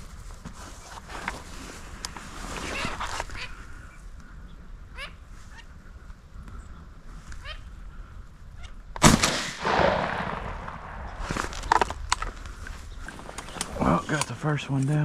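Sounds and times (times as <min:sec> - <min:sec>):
shotgun blast: 0:09.0 - 0:11.5
sharp cracks: 0:09.0 - 0:12.7.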